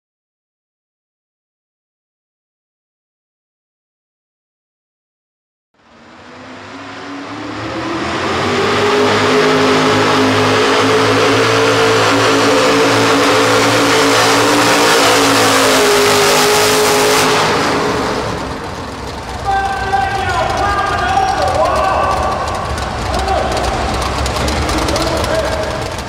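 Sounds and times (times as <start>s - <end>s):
tractor engine at full throttle: 5.8s - 26.0s.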